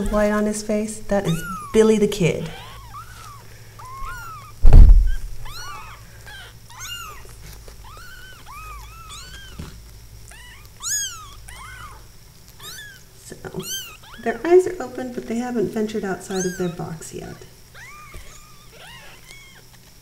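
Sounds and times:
kittens mewing: 0.0s - 14.6s, 16.0s - 19.8s
loud low thump: 4.6s - 5.4s.

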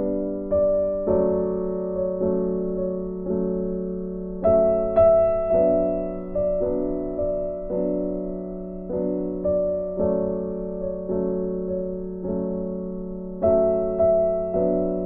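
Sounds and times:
slow gentle piano chords: 0.0s - 15.0s.

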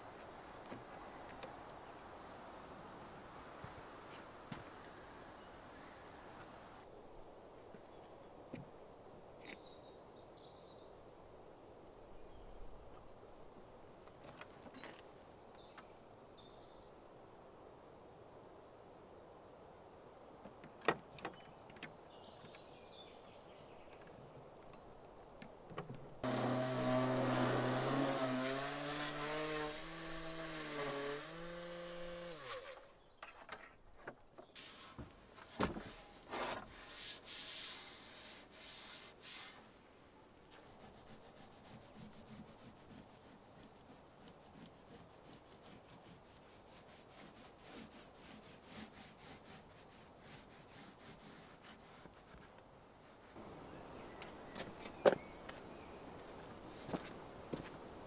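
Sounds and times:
power tool motor working wood: 26.2s - 32.8s.

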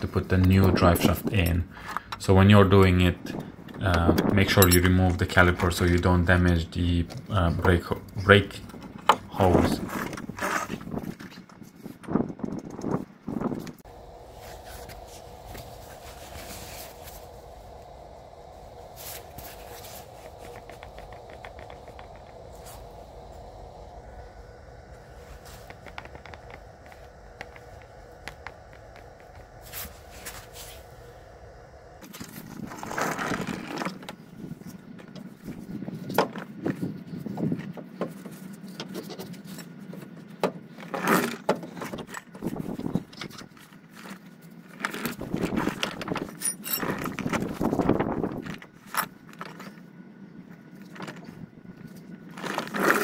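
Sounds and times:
faint steady hum: 0.0s - 53.0s
metal scraping and clinking: 46.1s - 47.5s.

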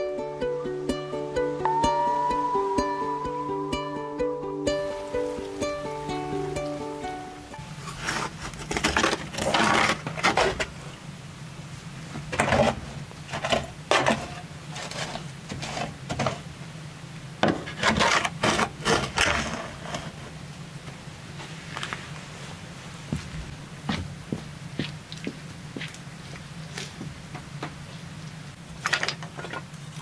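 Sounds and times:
logs scraping and knocking on brick: 7.7s - 10.8s, 12.2s - 16.5s, 17.4s - 20.4s, 28.8s - 30.0s.

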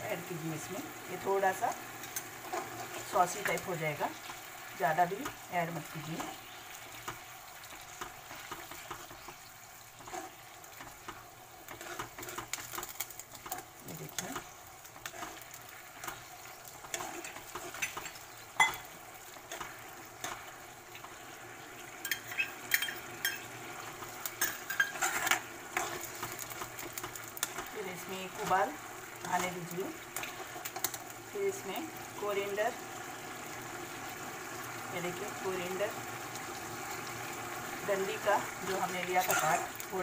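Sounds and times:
light sizzle: 0.0s - 40.0s
metal spoon scraping a wok: 10.0s - 10.4s, 11.0s - 13.6s, 15.0s - 16.2s, 16.8s - 18.8s, 24.4s - 27.6s, 39.2s - 39.7s.

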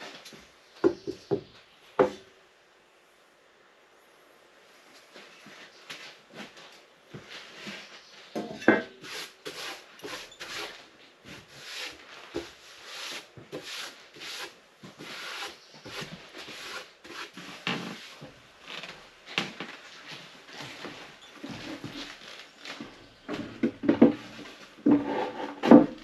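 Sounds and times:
rubbing strokes on wood: 9.0s - 18.3s.

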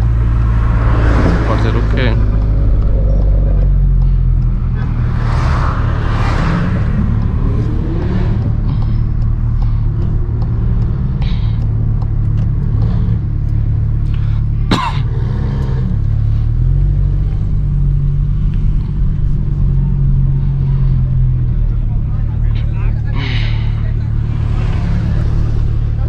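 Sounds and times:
car engine low revs: 0.0s - 26.0s.

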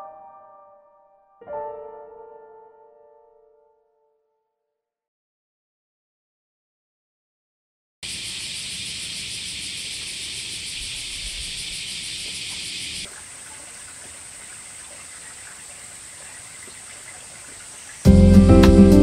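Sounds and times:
outdoor ambient hiss: 8.0s - 19.0s.

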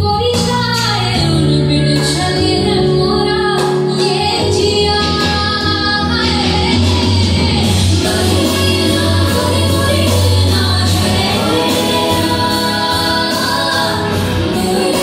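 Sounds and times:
low instrumental backing: 0.0s - 15.0s
woman singing: 0.0s - 15.0s.

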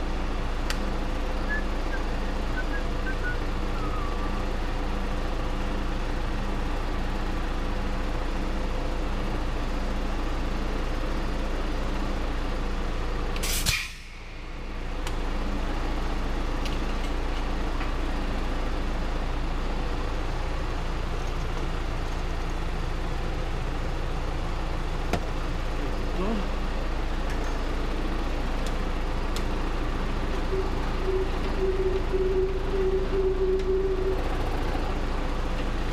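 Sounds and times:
tractor diesel engine running: 0.0s - 35.9s
sharp air hiss: 13.4s - 14.3s.

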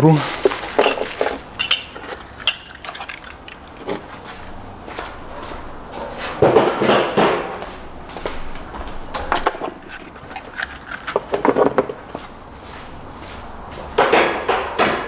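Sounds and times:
tools clicking and knocking: 0.4s - 4.4s, 9.2s - 12.2s, 14.0s - 15.0s.

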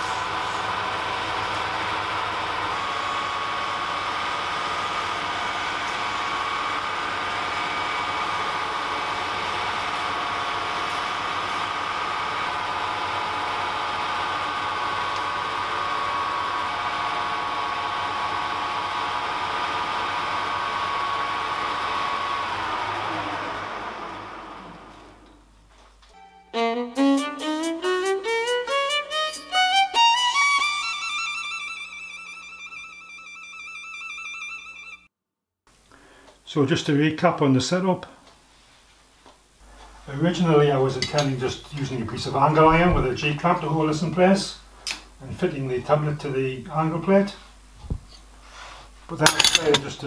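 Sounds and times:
lathe whining: 0.0s - 25.6s.

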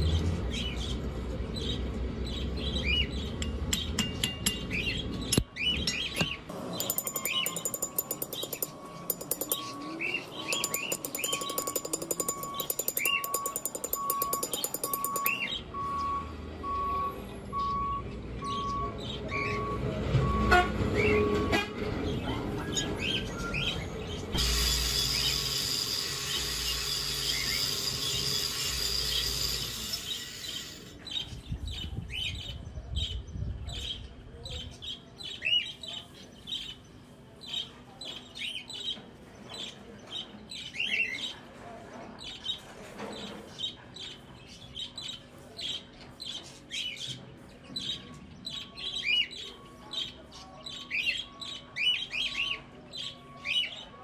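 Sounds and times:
birds chirping: 1.6s - 16.2s
angle grinder grinding steel: 6.8s - 9.8s, 10.4s - 15.3s, 24.4s - 30.9s.

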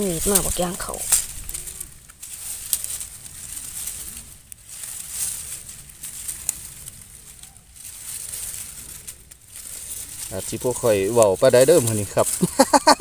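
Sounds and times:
hands rustling dry leaves: 0.0s - 13.0s
low wind rumble: 0.0s - 13.0s.

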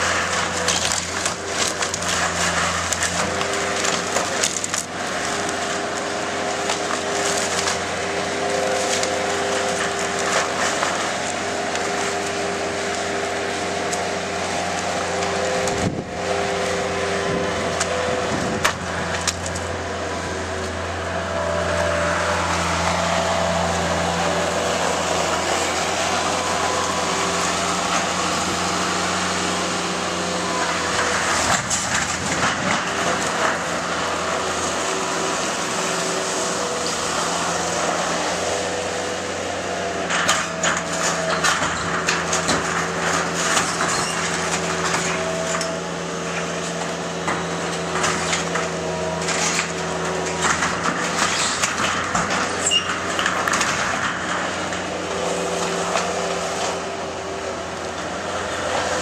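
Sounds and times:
wood and sheet metal cracking: 0.0s - 16.1s, 17.6s - 19.7s, 30.7s - 34.8s, 40.0s - 59.0s
diesel loader engine running: 0.0s - 59.0s.

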